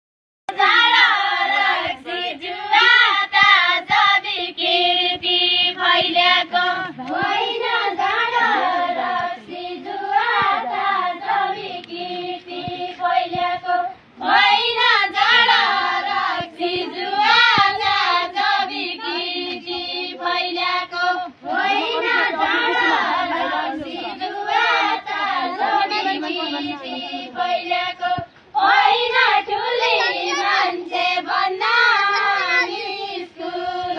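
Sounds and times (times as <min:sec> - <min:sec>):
women singing folk song: 0:00.5 - 0:33.9.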